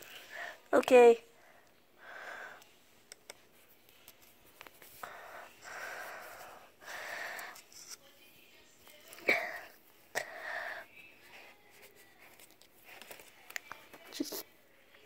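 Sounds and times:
small clicks and taps: 3.1 - 3.4
breathing through the nose: 5.0 - 7.6.

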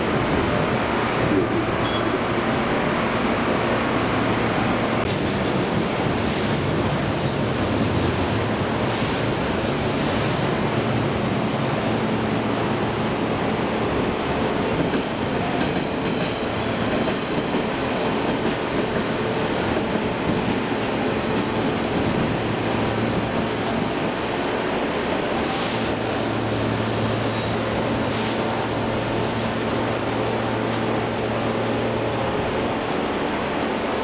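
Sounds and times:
train running on rails: 0.0 - 34.0.

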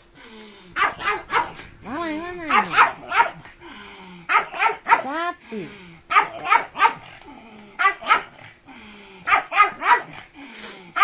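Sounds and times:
dog barking excitedly: 0.8 - 1.7, 2.4 - 3.5, 4.3 - 5.2, 6.1 - 7.2, 7.8 - 8.4, 9.3 - 10.3.

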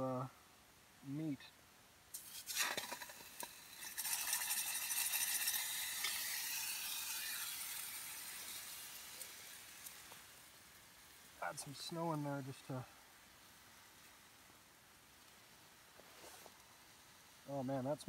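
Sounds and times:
steak sizzling in a pot: 2.1 - 12.5.

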